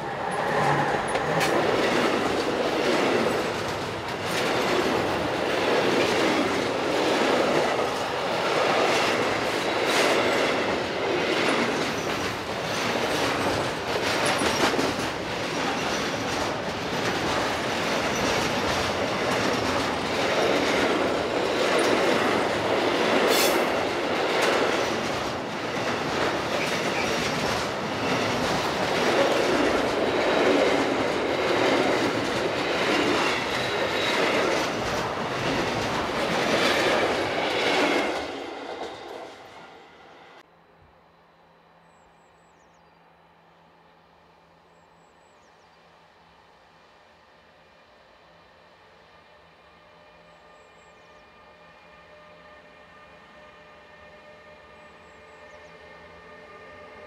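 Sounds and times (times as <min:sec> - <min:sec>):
electric locomotive passing fast: 0:00.0 - 0:40.4, 0:45.9 - 0:57.0
train wheels rolling: 0:00.0 - 0:40.4
wheels clacking over rail joints: 0:00.1 - 0:39.3.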